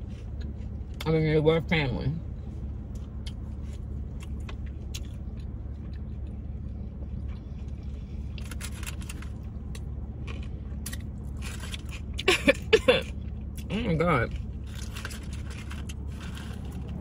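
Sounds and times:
chewing crispy fried food: 0.0s - 1.1s, 2.6s - 17.0s
low car cabin hum: 0.0s - 17.0s.

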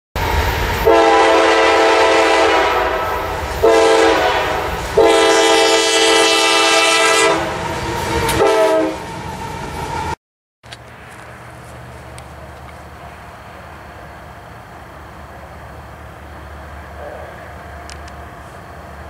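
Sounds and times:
low rumble of train: 0.2s - 19.0s
locomotive air horn blasts: 0.8s - 9.1s.

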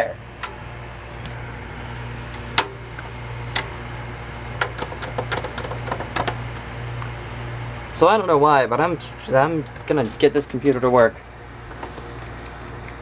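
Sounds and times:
computer humming: 0.0s - 13.0s
clicks and taps in computer case: 4.6s - 6.4s.

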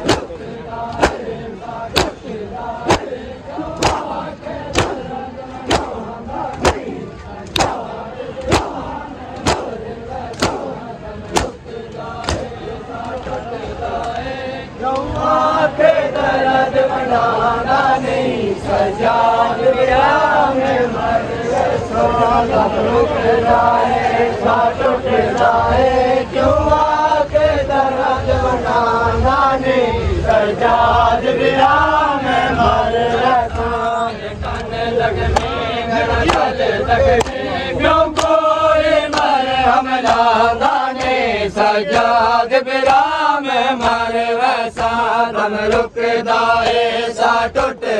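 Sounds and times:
hands slapping chests: 0.0s - 1.3s, 1.9s - 2.3s, 2.9s - 3.1s, 3.8s - 5.1s, 5.7s - 11.6s, 36.2s - 36.5s, 37.2s - 37.4s, 38.1s - 38.4s, 39.1s - 39.4s
men slapping chests in unison: 0.0s - 14.3s, 14.9s - 15.3s, 34.5s - 47.8s
men chanting a lament: 0.0s - 47.9s.

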